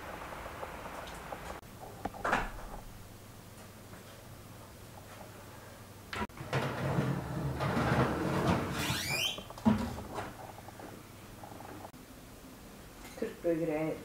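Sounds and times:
squeak falling in pitch: 0:08.8 - 0:09.4.

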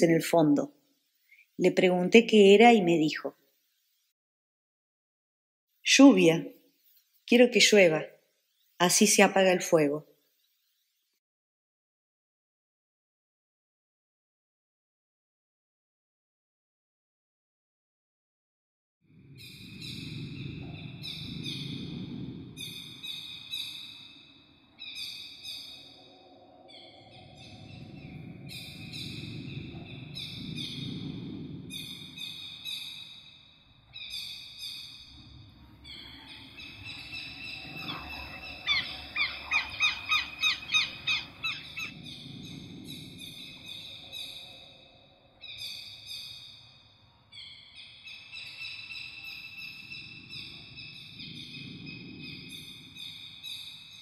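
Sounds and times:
low rushing sound: 0:19.1 - 0:34.0, 0:34.9 - 0:45.4.

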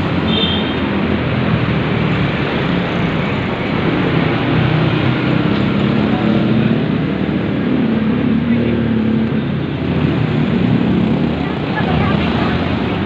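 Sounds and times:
traffic passing: 0:00.0 - 0:13.0.

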